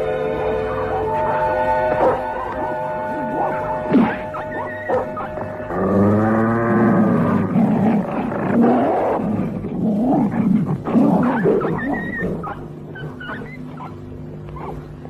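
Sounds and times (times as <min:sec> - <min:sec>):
cartoon wolves growling and snarling: 0:02.0 - 0:13.9.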